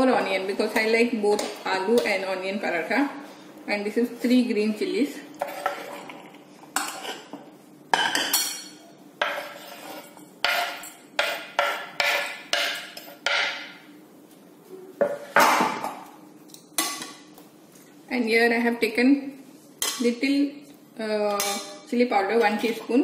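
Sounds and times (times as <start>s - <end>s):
dishes and spoons clinking: 6.8s - 13.8s.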